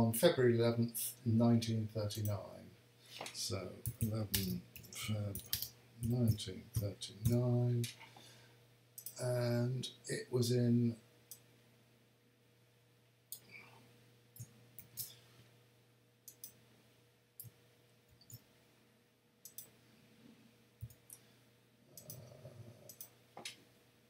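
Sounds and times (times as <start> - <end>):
faint computer mouse clicks: 19.4 - 19.7, 22.0 - 22.2, 22.9 - 23.6.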